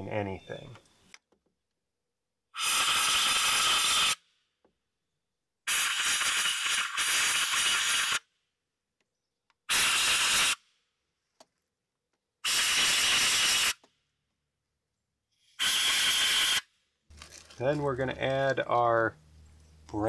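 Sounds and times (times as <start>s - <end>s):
compressed air hissing: 2.6s - 4.2s, 5.7s - 8.2s, 9.7s - 10.6s, 12.4s - 13.8s, 15.4s - 16.7s.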